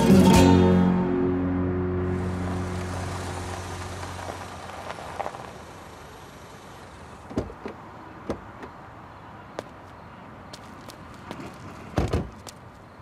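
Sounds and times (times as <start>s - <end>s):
background music: 0.0s - 3.1s
car drawing up and stopping: 0.0s - 9.9s.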